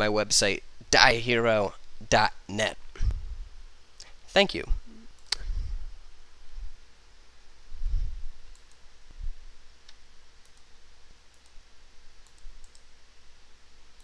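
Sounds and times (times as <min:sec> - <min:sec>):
faint room hiss: 0:00.0 - 0:14.0
computer mouse clicks: 0:08.5 - 0:08.8, 0:09.9 - 0:10.7, 0:11.3 - 0:11.6, 0:12.2 - 0:12.9.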